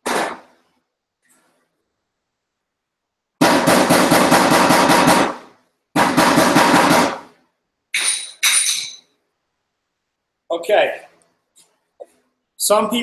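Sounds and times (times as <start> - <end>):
metallic clink ringing: 8.0 - 9.1.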